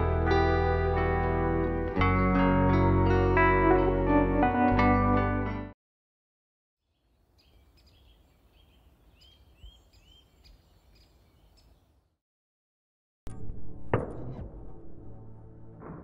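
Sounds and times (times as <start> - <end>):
bird chirping: 6.8 - 12.0.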